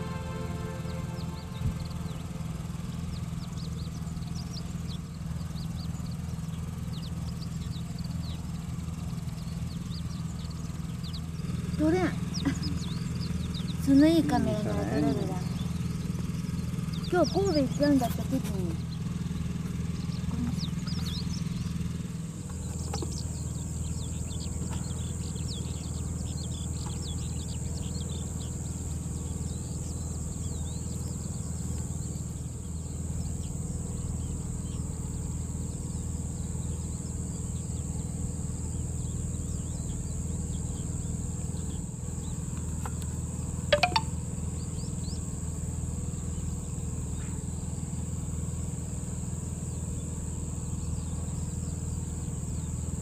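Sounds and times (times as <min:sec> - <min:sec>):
low hum: 0:00.0 - 0:36.4
birds chirping: 0:00.0 - 0:53.0
insects buzzing: 0:00.0 - 0:53.0.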